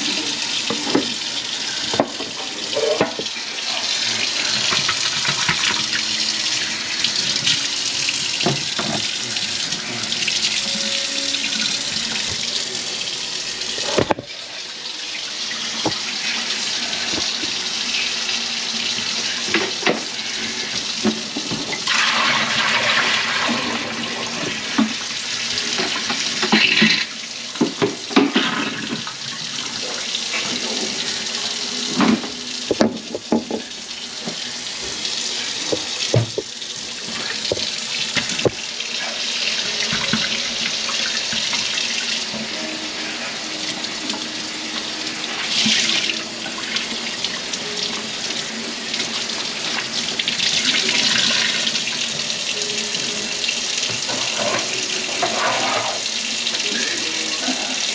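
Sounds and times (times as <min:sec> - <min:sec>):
water running into sink: 0:00.0 - 0:57.9.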